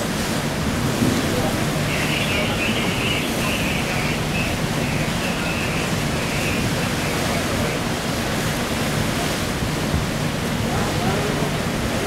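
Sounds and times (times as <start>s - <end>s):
wind on microphone: 0.0s - 7.8s
rough sea rushing against ship: 0.0s - 12.0s.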